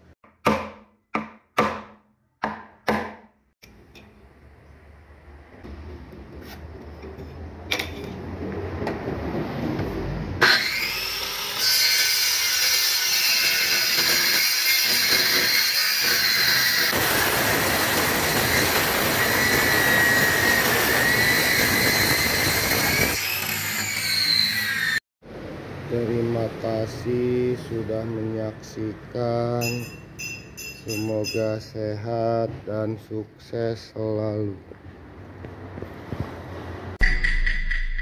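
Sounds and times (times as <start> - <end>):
circular saw cutting wood: 10.4 - 25.0.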